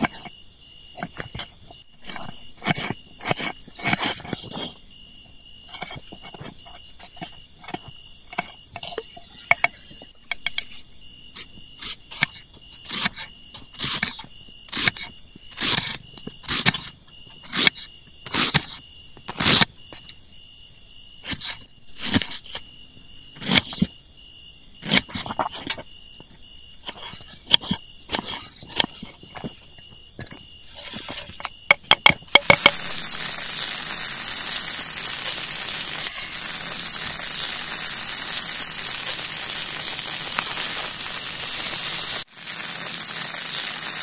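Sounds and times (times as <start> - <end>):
crickets chirring: 0.0 - 44.0
sharp clicks and knocks: 30.2 - 32.8.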